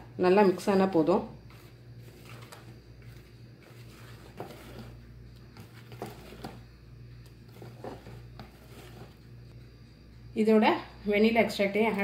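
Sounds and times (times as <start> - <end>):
steady low hum: 0.0 - 12.0
whisk stirring batter: 1.6 - 6.6.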